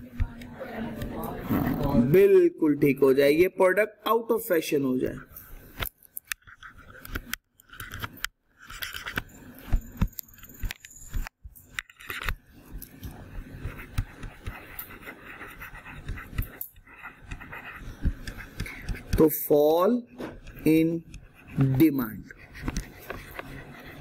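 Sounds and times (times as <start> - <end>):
stylus scratching on pen tablet: 6.3 - 24.0.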